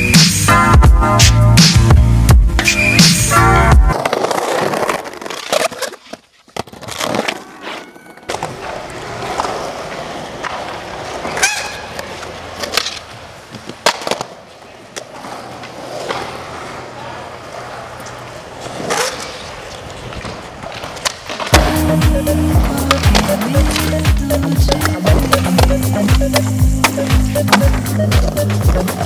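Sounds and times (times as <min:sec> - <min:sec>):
music: 0:00.0 - 0:03.9, 0:21.6 - 0:29.0
skateboard wheels rolling on concrete: 0:00.0 - 0:29.0
skateboard clacking on ground: 0:03.9 - 0:29.0.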